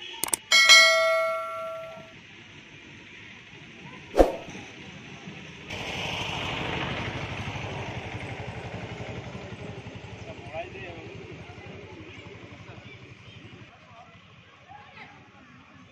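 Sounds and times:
sharp click: 0:00.2 - 0:02.0
notification bell chime: 0:00.2 - 0:02.1.

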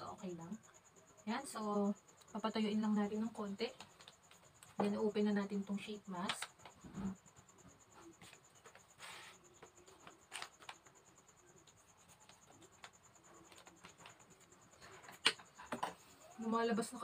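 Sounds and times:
faint high-pitched whine: 0:00.0 - 0:17.0
packet crackle: 0:10.0 - 0:10.9
packet crinkling and rustling: 0:10.0 - 0:10.9.

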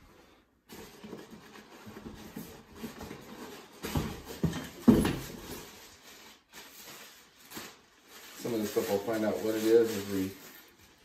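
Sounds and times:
plastic packaging crinkling: 0:05.2 - 0:11.0.

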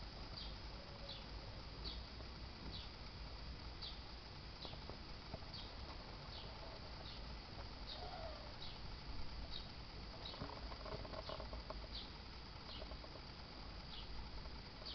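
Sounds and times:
faint high chirps: 0:00.4 - 0:02.1, 0:05.5 - 0:10.4.

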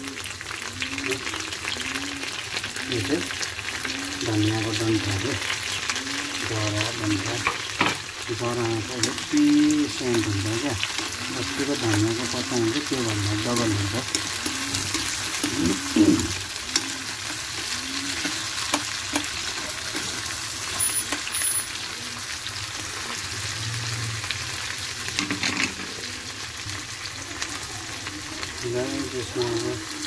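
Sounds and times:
vegetables sizzling in oil: 0:00.0 - 0:30.0
metal spoon clinking on pan: 0:20.7 - 0:21.8.

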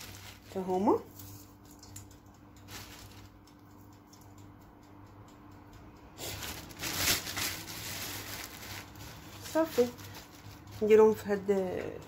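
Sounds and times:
rustling: 0:00.0 - 0:01.5, 0:02.7 - 0:03.3, 0:06.2 - 0:10.9
herbs pattering: 0:00.0 - 0:04.6, 0:06.2 - 0:12.0.

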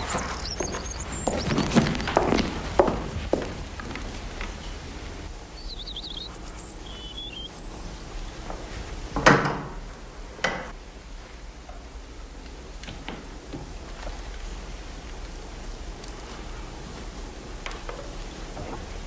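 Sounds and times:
faint high chirps: 0:00.0 - 0:02.1, 0:05.6 - 0:07.8.

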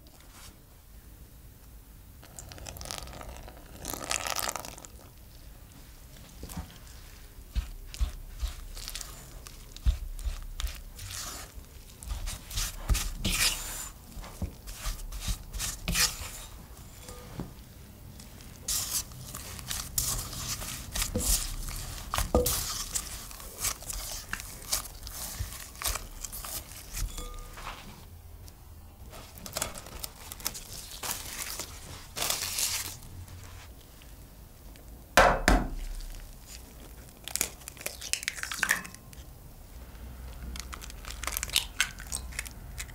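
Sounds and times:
dough squishing: 0:02.2 - 0:05.4, 0:06.0 - 0:28.1, 0:29.0 - 0:33.8, 0:35.7 - 0:39.3
spatula scraping glass bowl: 0:07.9 - 0:13.9, 0:14.7 - 0:17.4, 0:18.7 - 0:27.8.

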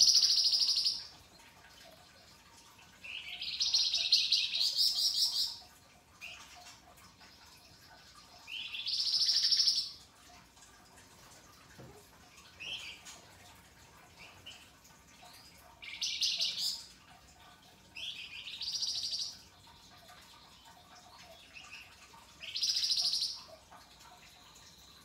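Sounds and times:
songbird singing: 0:00.0 - 0:01.1, 0:03.0 - 0:05.6, 0:08.4 - 0:10.0, 0:15.3 - 0:16.9, 0:18.0 - 0:19.5, 0:20.4 - 0:23.6.

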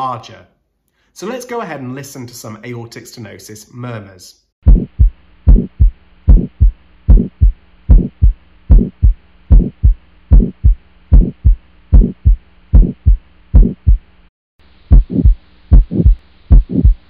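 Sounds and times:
faint steady hum: 0:00.0 - 0:17.0
heartbeat with murmur: 0:04.6 - 0:14.1, 0:14.9 - 0:17.0.

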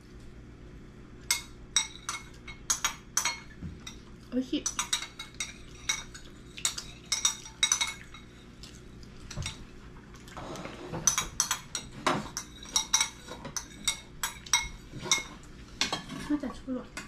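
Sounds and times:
tableware clinking: 0:06.7 - 0:08.3, 0:10.8 - 0:16.4.

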